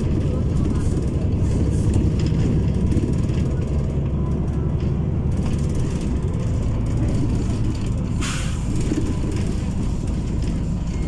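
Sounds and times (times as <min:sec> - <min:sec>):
bus engine rumble and road noise: 0:00.0 - 0:11.0
air brakes hissing: 0:08.1 - 0:09.0.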